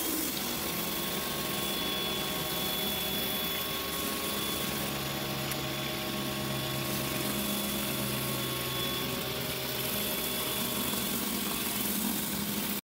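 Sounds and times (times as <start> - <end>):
water spraying onto concrete: 0.0 - 2.3, 9.6 - 12.8
pressure washer motor hum: 0.0 - 12.8.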